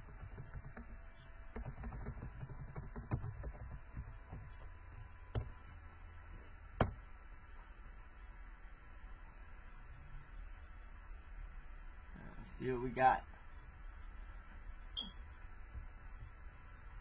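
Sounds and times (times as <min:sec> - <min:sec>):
typing on computer keyboard: 0:00.0 - 0:04.6.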